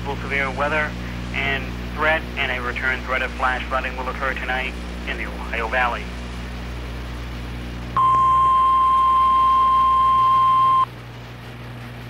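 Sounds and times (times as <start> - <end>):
radio low hum: 0.0 - 6.3
high warning beep: 8.0 - 10.9.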